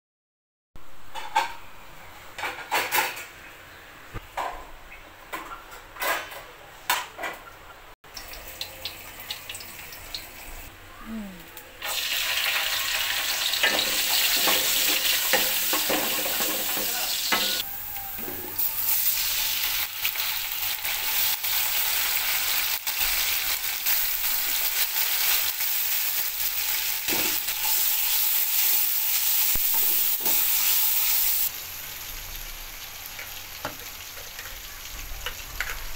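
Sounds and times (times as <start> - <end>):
onions sizzling in hot oil: 8.1 - 10.7, 11.8 - 35.9.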